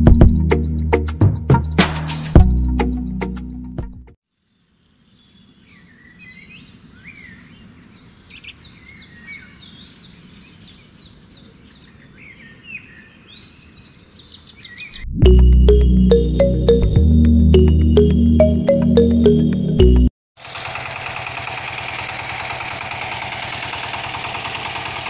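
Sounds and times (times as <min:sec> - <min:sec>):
background music: 0:00.0 - 0:04.1, 0:15.2 - 0:20.1
birds chirping: 0:04.5 - 0:15.0.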